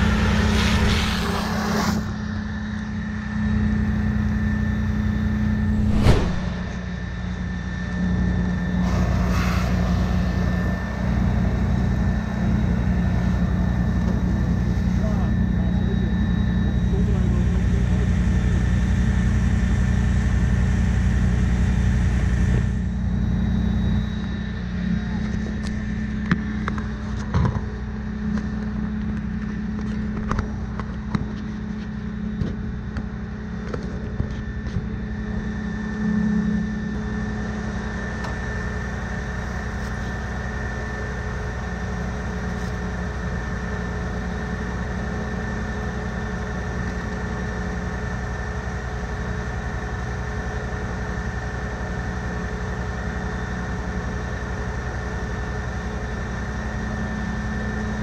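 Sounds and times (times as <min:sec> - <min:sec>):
engine and pump hum: 0:00.0 - 0:58.0.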